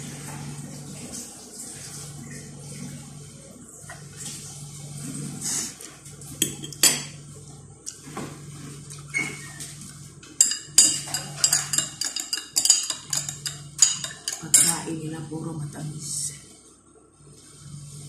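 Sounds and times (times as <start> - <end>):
glass jar clinking: 10.4 - 14.8.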